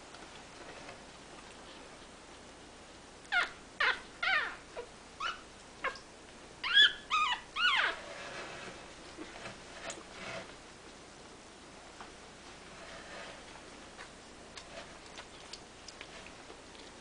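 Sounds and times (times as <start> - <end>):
puppy squealing and whimpering: 3.3 - 6.0, 6.6 - 8.2.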